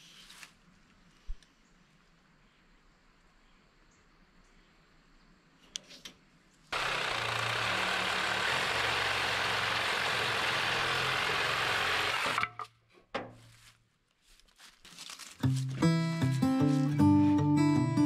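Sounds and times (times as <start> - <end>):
power tool running: 6.7 - 12.6.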